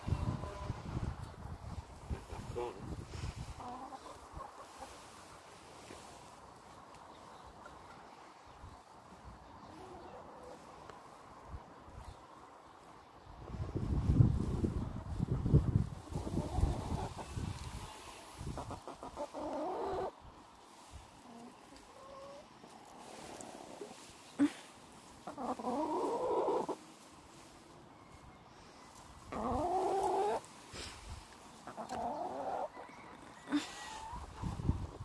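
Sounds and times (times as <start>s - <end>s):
hens calling: 1.7s - 6.0s, 16.0s - 20.3s, 20.9s - 27.4s, 29.2s - 30.6s, 31.5s - 34.6s.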